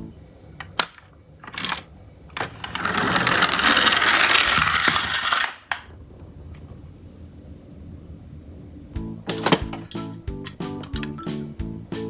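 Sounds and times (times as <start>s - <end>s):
toy truck motors whirring: 1.4s - 5.8s.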